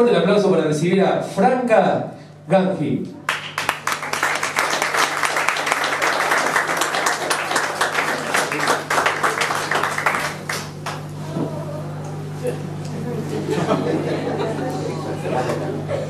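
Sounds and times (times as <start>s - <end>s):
audience applauding: 3.3s - 11.2s.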